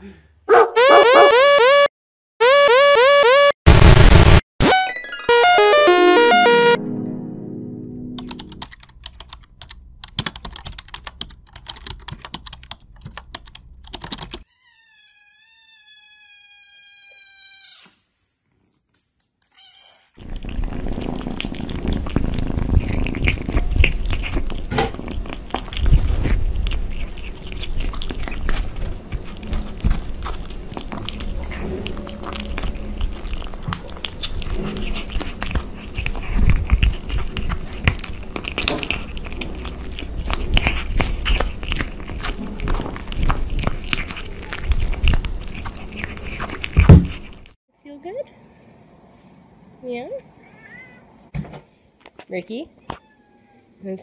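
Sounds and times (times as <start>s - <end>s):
kitten chewing: 8.3s - 14.4s, 20.2s - 47.6s.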